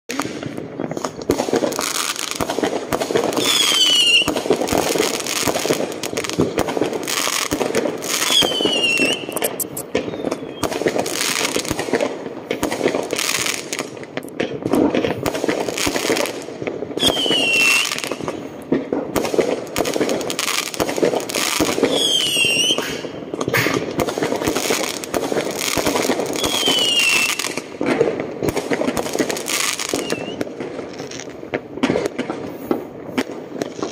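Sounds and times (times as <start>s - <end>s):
fireworks bangs and crackles: 0.1s - 33.9s
high whistle falling in pitch: 8.3s - 10.7s, 29.9s - 30.4s.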